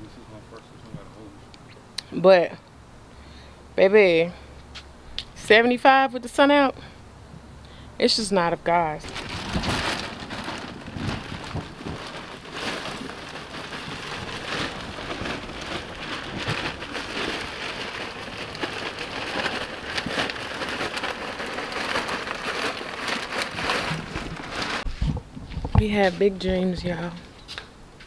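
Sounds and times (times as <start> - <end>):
mulch pouring onto soil: 9.2 - 24.8.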